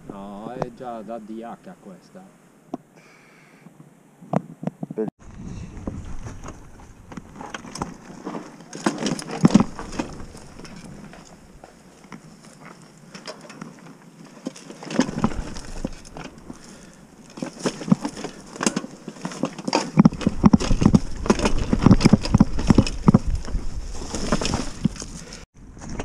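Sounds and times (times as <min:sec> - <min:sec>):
mountain bike rattling over rocks: 0:05.8 - 0:26.0.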